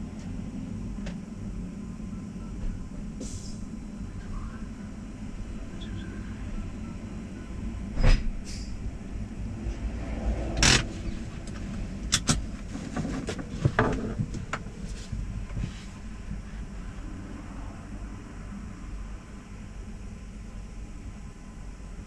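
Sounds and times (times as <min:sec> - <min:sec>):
knocks and clicks in cab: 0:11.5 - 0:14.8.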